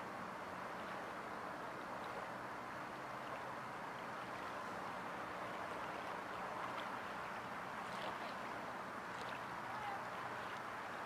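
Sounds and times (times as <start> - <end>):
faint water splashes: 0.0 - 11.0
small waves lapping: 0.0 - 11.0.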